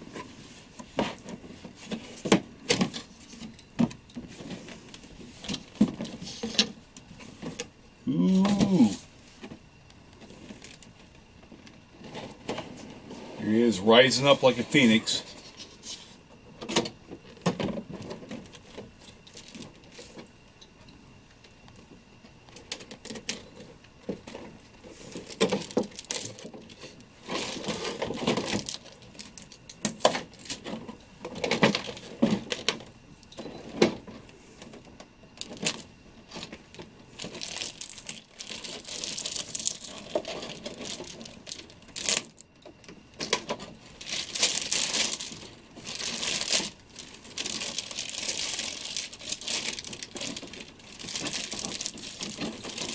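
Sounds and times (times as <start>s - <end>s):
plastic packaging crinkling: 18.0s - 20.2s, 22.6s - 32.9s, 35.4s - 52.9s.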